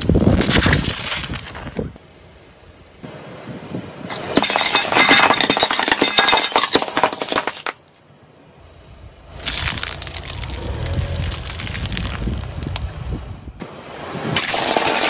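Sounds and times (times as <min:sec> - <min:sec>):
ceramic plates shattering: 0:04.1 - 0:07.9.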